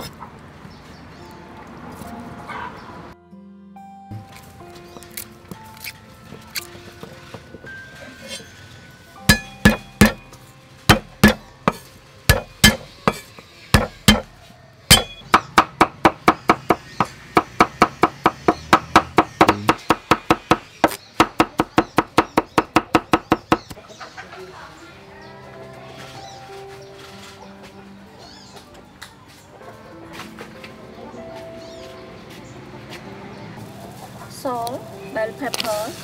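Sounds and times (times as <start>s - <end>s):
cleaver chopping on wooden board: 9.3s - 10.3s, 10.9s - 23.8s.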